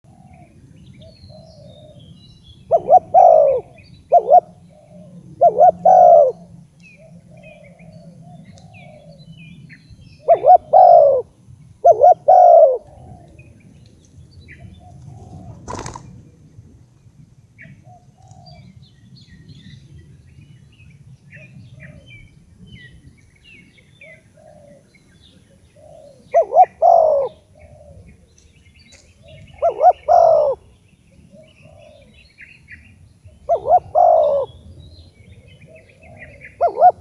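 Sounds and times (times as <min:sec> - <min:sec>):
dove cooing: 0:00.0 - 0:09.2, 0:10.2 - 0:13.5, 0:14.5 - 0:16.4, 0:24.0 - 0:28.3, 0:29.2 - 0:32.2, 0:33.3 - 0:37.0.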